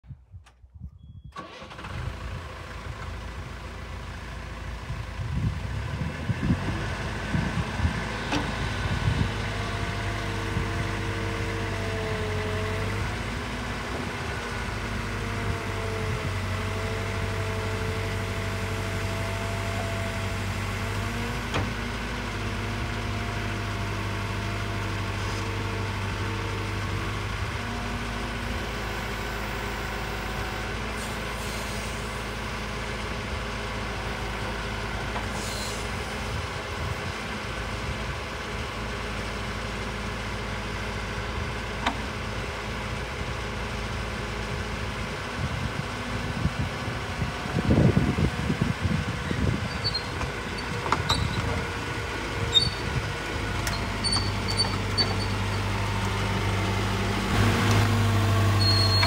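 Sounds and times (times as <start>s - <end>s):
excavator diesel engine running: 1.4s - 59.0s
hydraulic whine: 49.4s - 59.0s.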